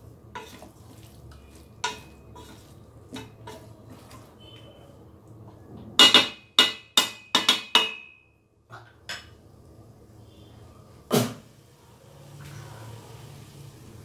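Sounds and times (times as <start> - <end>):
utensil clinking on metal pot: 1.8 - 4.2, 6.0 - 8.2.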